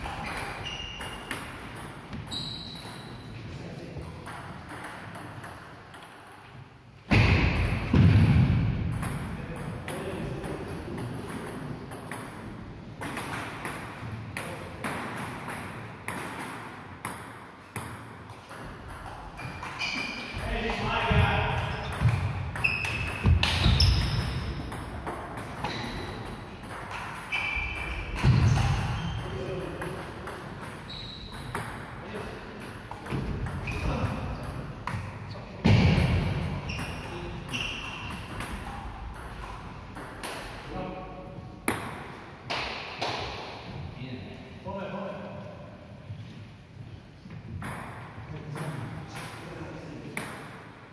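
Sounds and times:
shoe squeaks on wooden floor: 0.2s - 1.3s, 2.1s - 3.2s, 19.4s - 20.4s, 22.6s - 24.3s, 25.6s - 26.1s, 27.3s - 29.3s, 30.8s - 31.5s, 36.6s - 38.2s.

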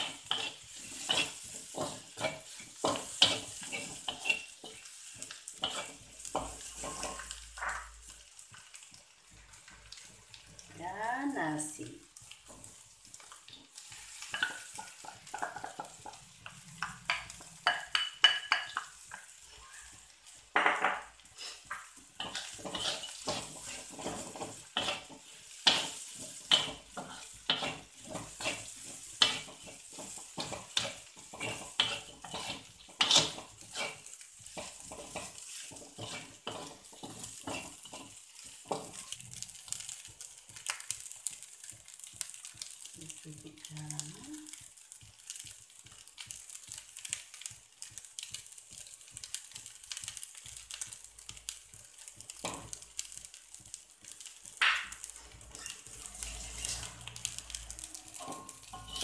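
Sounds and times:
spatula scraping metal wok: 0.0s - 7.9s, 13.8s - 39.5s, 55.0s - 59.0s
frying sizzle: 0.0s - 59.0s.

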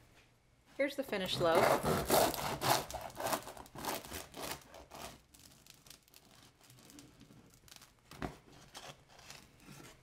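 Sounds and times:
bread knife sawing crusty loaf: 1.2s - 5.2s.

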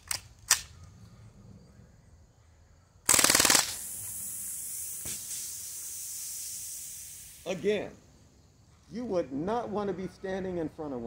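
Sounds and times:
sharp click: 0.0s - 0.7s
air rifle fast burst: 3.1s - 7.6s
hiss from punctured bottle: 3.6s - 7.7s.

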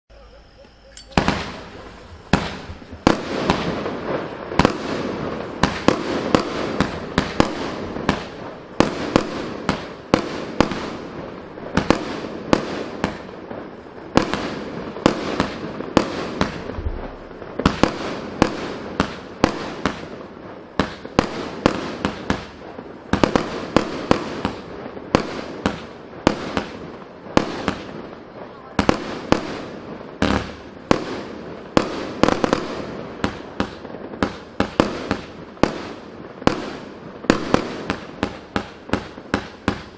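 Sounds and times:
firework launch and burst reports: 0.4s - 10.9s, 14.2s - 20.1s.

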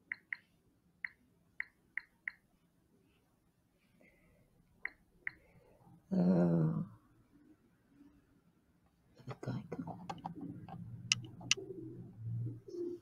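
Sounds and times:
touchscreen keyboard ticks: 0.0s - 2.4s, 10.0s - 11.6s.

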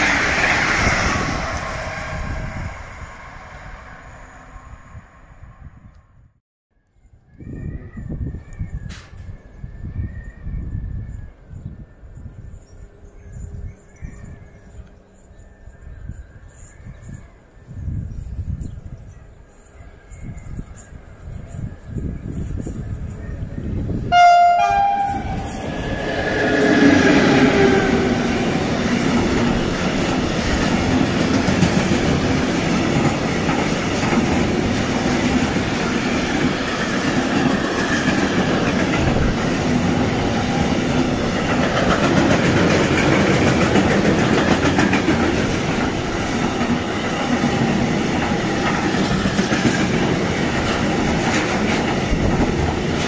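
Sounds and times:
locomotive whine: 0.0s - 6.2s, 23.7s - 51.0s
wagon wheels rumbling on rails: 25.0s - 53.0s.

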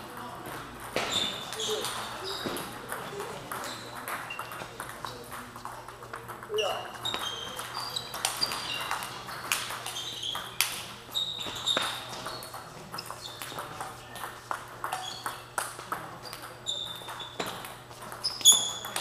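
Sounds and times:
table tennis balls clicking: 0.0s - 19.0s
short high squeaks: 11.1s - 13.4s, 18.2s - 18.9s.

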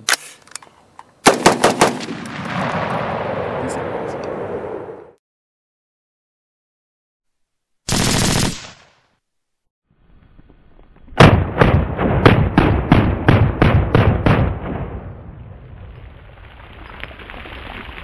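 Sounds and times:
rapid gunshots with echo: 1.3s - 2.2s, 7.9s - 9.0s, 11.2s - 15.0s.

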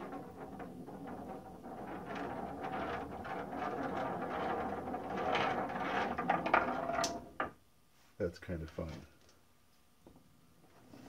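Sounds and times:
marble rolling down wooden ramp: 0.0s - 7.6s.

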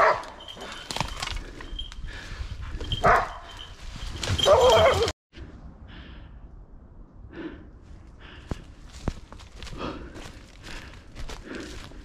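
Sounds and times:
hounds barking and baying: 0.0s - 0.8s, 2.9s - 3.7s, 4.3s - 5.1s.

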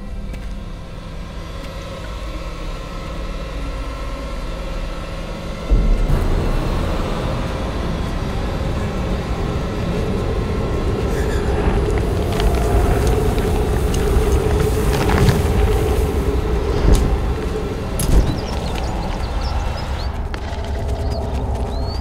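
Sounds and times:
deep rumble: 0.0s - 22.0s
low droning chord: 0.0s - 22.0s
crackles: 5.6s - 22.0s.

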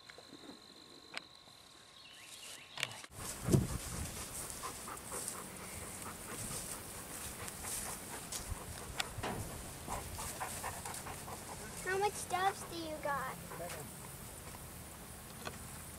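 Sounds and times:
animal panting: 3.2s - 14.0s
loud thump: 9.2s - 9.6s.

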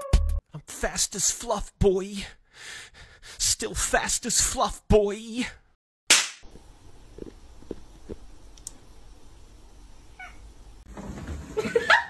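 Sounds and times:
cat meowing: 10.2s - 10.4s.

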